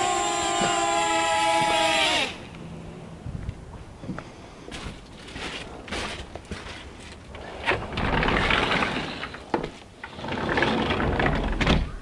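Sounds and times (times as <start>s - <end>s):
sliding glass door rolling: 7.3s - 11.9s.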